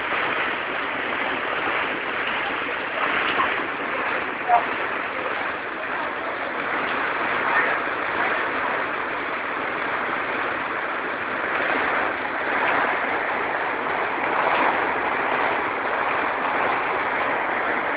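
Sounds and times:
heavy rain on wet paving: 0:00.0 - 0:17.9.

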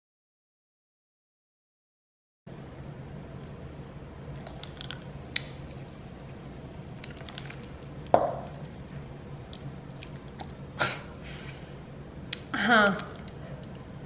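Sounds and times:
low steady hum: 0:02.5 - 0:14.0
cup knocking on countertop: 0:08.2 - 0:08.5.

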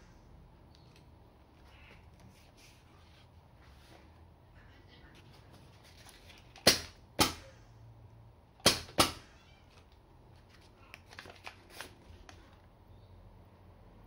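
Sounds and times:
paper crinkling: 0:10.3 - 0:12.6.

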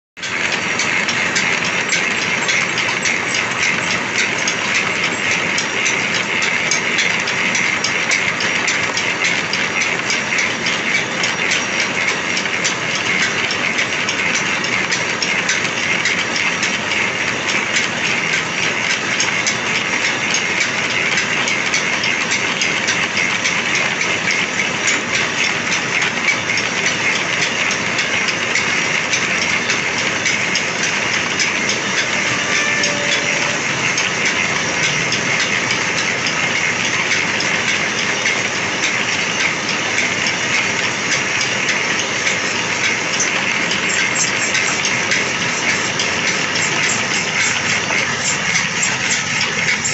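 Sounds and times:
pillar drill cutting steel: 0:31.9 - 0:35.5, 0:42.2 - 0:49.9.

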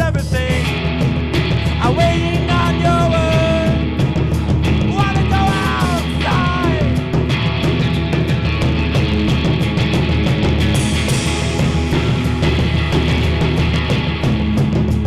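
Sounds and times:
man singing and yelling: 0:00.0 - 0:00.7, 0:01.8 - 0:07.0
drum beat: 0:00.0 - 0:15.0
electric guitar: 0:00.0 - 0:15.0.

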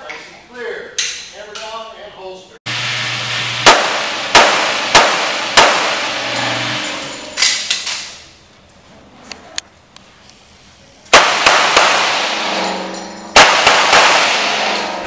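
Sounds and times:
handgun shots echoing: 0:03.6 - 0:06.2, 0:11.1 - 0:15.0.

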